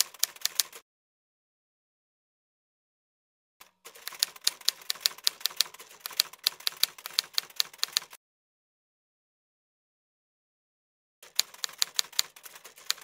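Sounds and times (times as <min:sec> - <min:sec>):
typewriter keys clacking: 0:00.0 - 0:00.8, 0:03.9 - 0:08.2, 0:11.3 - 0:13.0.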